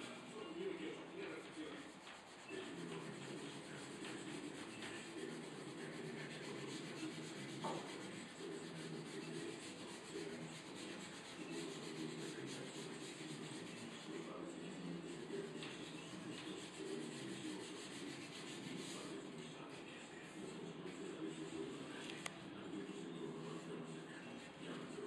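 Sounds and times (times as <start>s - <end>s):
sandpaper rubbing on wood: 1.0s - 21.8s.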